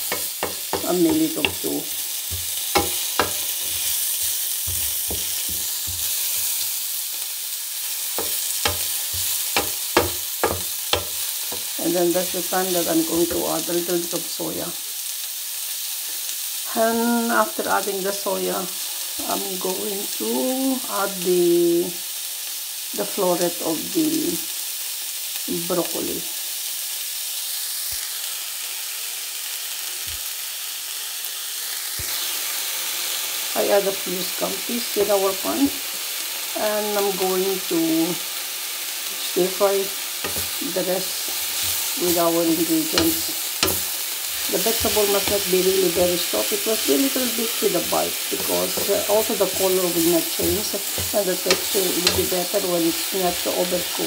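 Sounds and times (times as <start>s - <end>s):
wooden spatula knocking pan: 0.0s - 6.2s, 8.2s - 11.8s, 40.3s - 40.6s, 42.7s - 46.9s, 47.6s - 52.6s
vegetables sizzling in oil: 0.0s - 54.0s.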